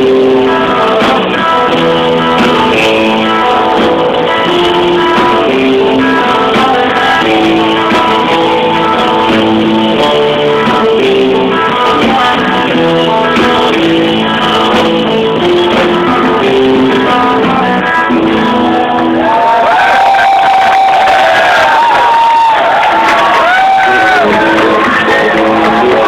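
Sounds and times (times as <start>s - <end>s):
live rock band instrumental: 0.0s - 26.0s
crowd cheering and whooping: 18.8s - 26.0s.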